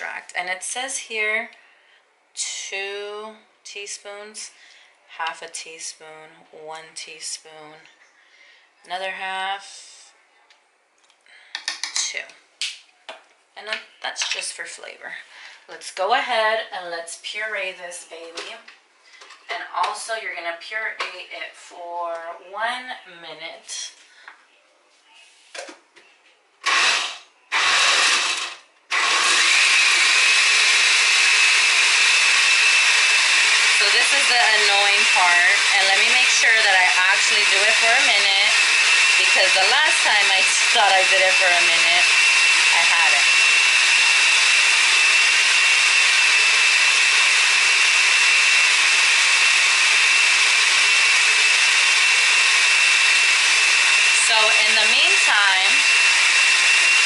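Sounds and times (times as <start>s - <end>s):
blender motor running: 26.6s - 57.0s.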